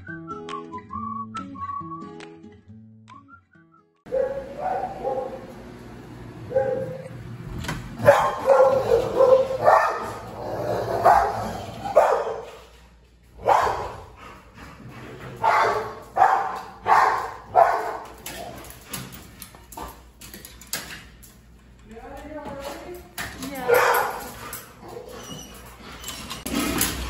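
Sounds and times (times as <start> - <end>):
dog barking and yipping: 4.1 - 5.4, 6.5 - 7.1, 8.0 - 12.6, 13.4 - 14.1, 15.4 - 18.4, 23.6 - 25.6.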